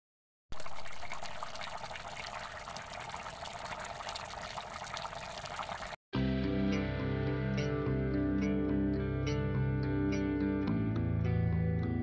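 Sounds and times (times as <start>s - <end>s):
pot boiling with popping bubbles: 0.6s - 6.0s
guitar music: 6.2s - 12.0s.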